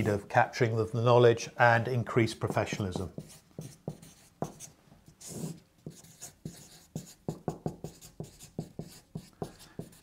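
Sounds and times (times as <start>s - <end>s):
marker pen writing on paper: 2.4s - 10.0s.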